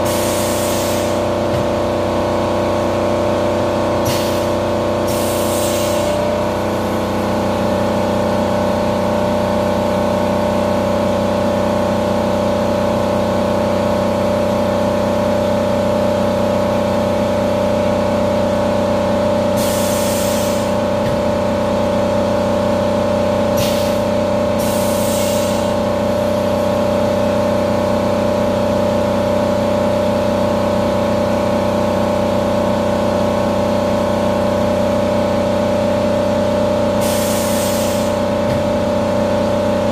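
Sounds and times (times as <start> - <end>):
coolant spray hiss: 0.0 - 1.2, 5.1 - 6.2, 19.6 - 20.8, 24.6 - 25.7, 37.0 - 38.2.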